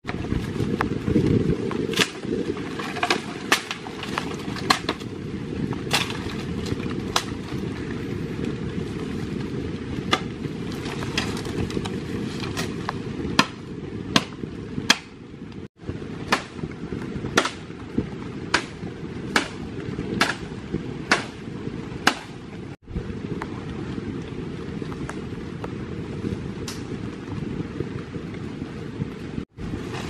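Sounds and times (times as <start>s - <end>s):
twigs cracking: 1.6s - 8.0s.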